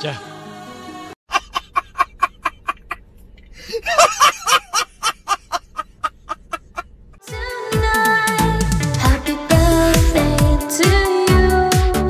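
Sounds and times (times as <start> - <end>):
rapid high-pitched cackling: 1.3 - 3.0, 3.9 - 6.9.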